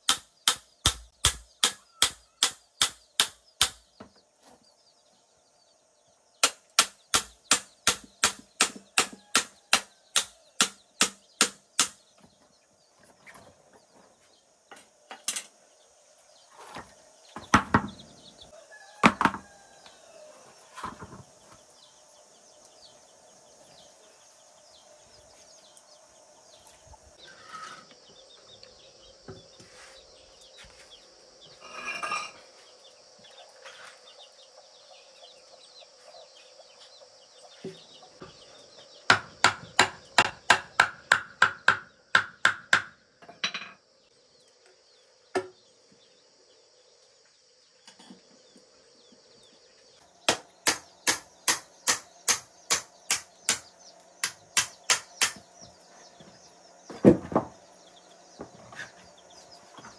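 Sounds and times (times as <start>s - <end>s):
knocks: 19.0s - 19.4s.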